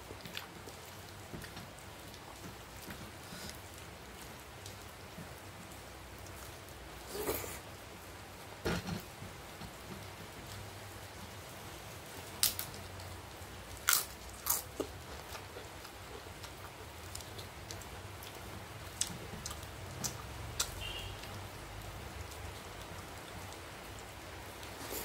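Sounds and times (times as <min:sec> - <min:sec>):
chewing: 0:00.2 - 0:00.6, 0:13.8 - 0:18.4, 0:19.0 - 0:21.3
sharp clicks and crunches: 0:12.4 - 0:13.1.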